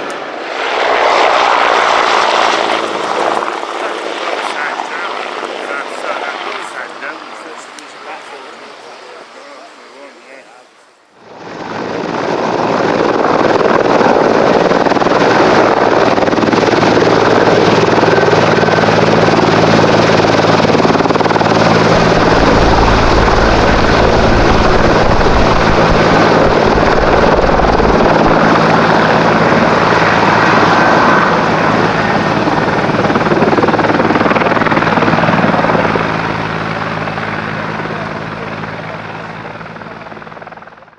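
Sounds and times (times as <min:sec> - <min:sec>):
helicopter rotor beating: 0:00.0 - 0:40.9
turbine engine whine: 0:00.0 - 0:40.9
deep rumble: 0:20.1 - 0:36.6.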